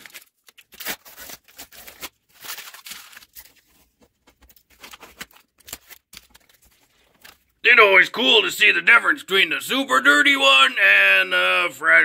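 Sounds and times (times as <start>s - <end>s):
tape being peeled off: 0.0s - 3.6s.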